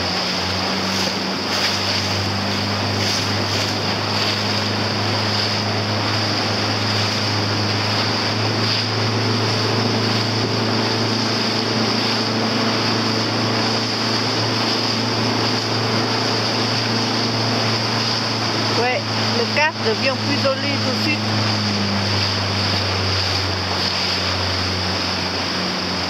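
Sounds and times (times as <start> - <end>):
motorboat engine running: 0.0 - 26.0
water rushing: 0.0 - 26.0
wind: 0.0 - 26.0.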